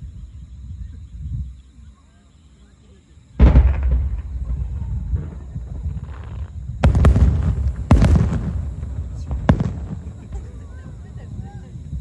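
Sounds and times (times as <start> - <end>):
low rumble: 3.4 - 10.5
fireworks booming: 3.4 - 12.0.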